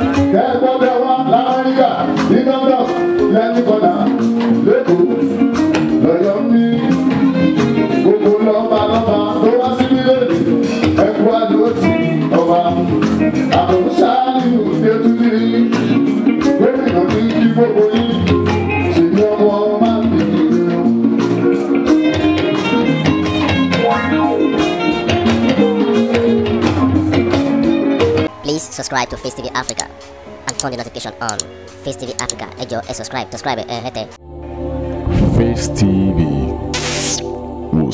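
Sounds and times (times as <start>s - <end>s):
man singing: 0.0s - 21.2s, 35.1s - 37.9s
band with steady percussion: 0.0s - 28.3s.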